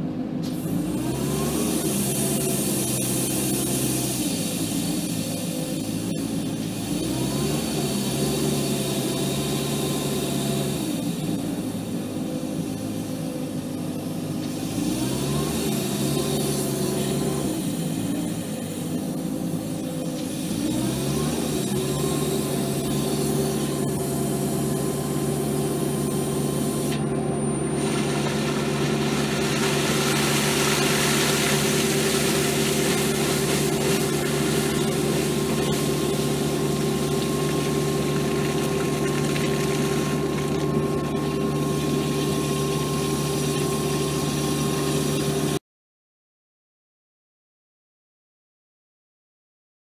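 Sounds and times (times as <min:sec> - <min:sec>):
steady engine hum: 0:00.0 - 0:45.6
water rushing spray: 0:27.8 - 0:40.7.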